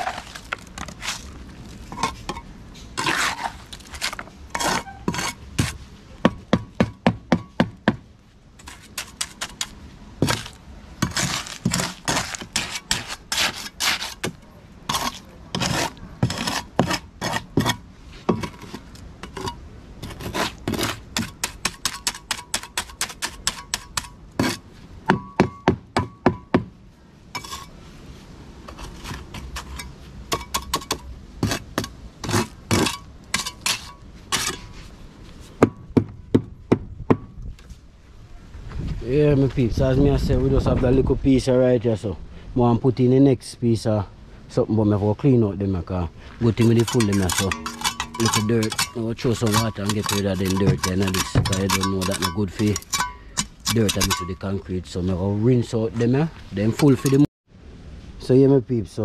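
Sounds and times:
tool scraping concrete: 0.0s - 5.8s, 8.6s - 24.7s, 27.4s - 27.8s, 28.7s - 34.9s, 46.4s - 54.7s, 55.9s - 57.3s
hand tools knocking on formwork: 46.7s - 53.1s.

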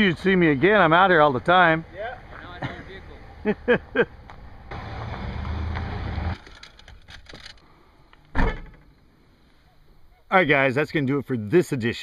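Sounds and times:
loud thump: 8.3s - 8.9s.

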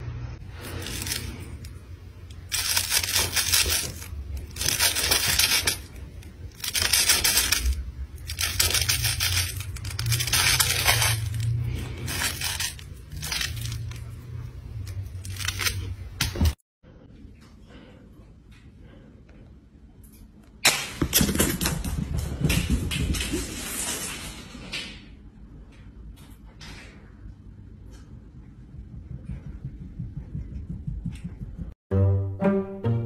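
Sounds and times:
low hum: 25.3s - 31.8s.

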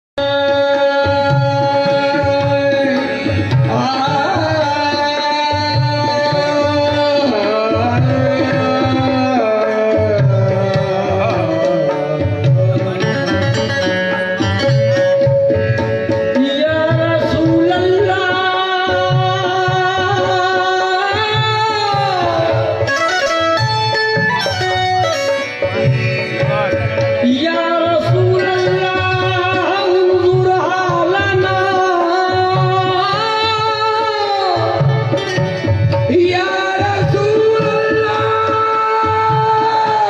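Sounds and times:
man singing into microphone: 0.2s - 23.2s, 25.6s - 40.0s
harmonium sustained notes: 0.2s - 40.0s
hand drum beat: 1.3s - 40.0s.

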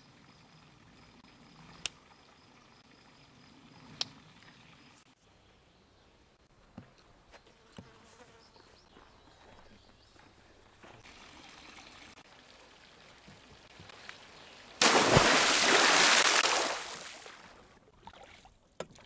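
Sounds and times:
light trickle of water: 10.8s - 14.8s
big splash of water: 14.8s - 17.6s.

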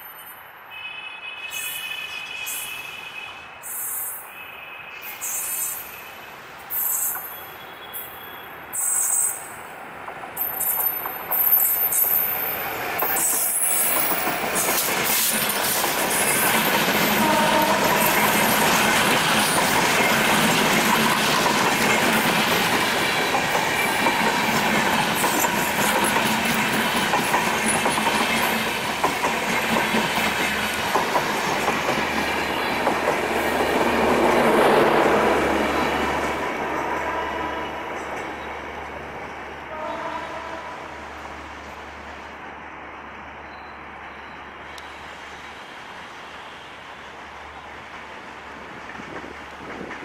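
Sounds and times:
diesel locomotive passing: 1.4s - 50.0s
train wheels clattering on rails: 10.0s - 37.2s, 47.8s - 50.0s.

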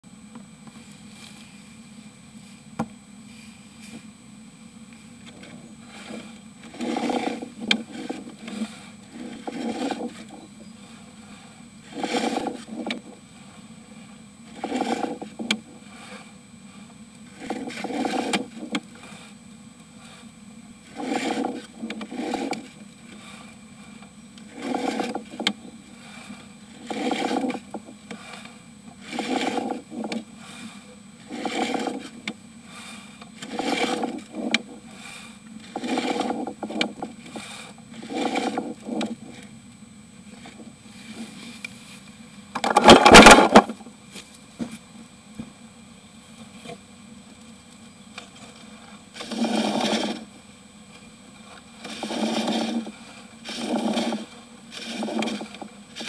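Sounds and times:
cable scraping in drain pipe: 5.4s - 10.5s, 11.2s - 13.2s, 14.5s - 16.3s, 17.3s - 19.4s, 20.0s - 39.5s, 42.6s - 43.8s, 49.2s - 50.3s, 51.4s - 56.0s.

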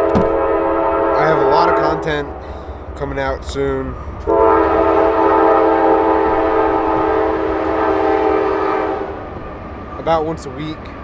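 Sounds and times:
train horn chord: 0.0s - 2.9s, 4.0s - 9.3s.

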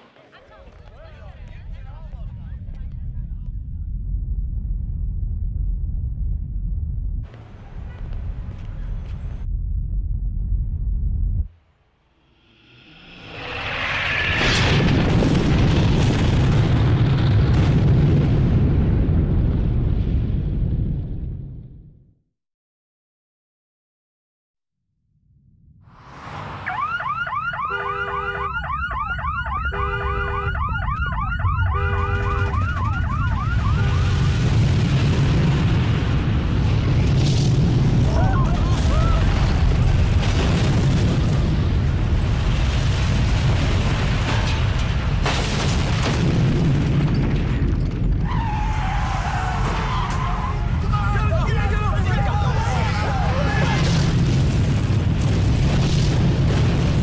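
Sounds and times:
deep rumble: 1.0s - 22.0s, 30.7s - 57.0s
energy beam roar: 12.2s - 16.2s
car alarms whooping: 26.6s - 34.0s.

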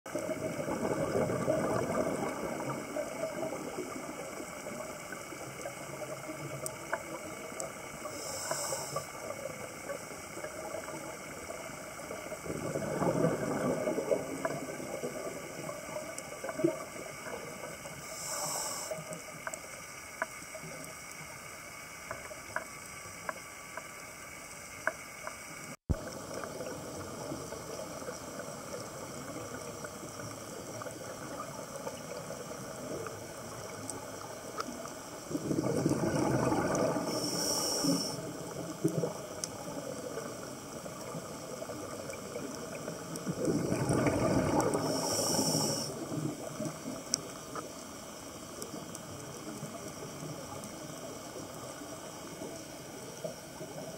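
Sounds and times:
exhaled bubbles rumbling underwater: 0.1s - 21.5s, 25.6s - 53.9s
regulator inhale hiss: 7.6s - 9.8s, 17.9s - 20.1s, 36.8s - 38.6s, 44.5s - 46.4s.

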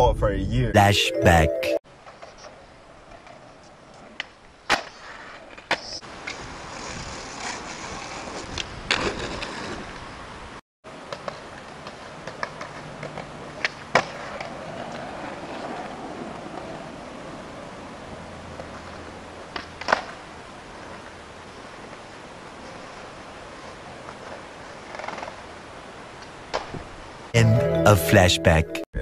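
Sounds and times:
skateboard wheels rolling on pavement: 1.9s - 27.4s
skateboard clacking on ground: 11.1s - 17.1s, 18.6s - 21.2s, 23.9s - 25.6s.

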